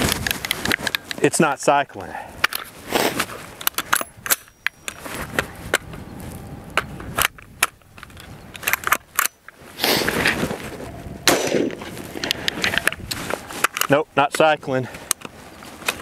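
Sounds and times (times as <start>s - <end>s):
rifle action metallic clicks: 6.8s - 9.5s
loud rifle shot: 11.2s - 12.4s.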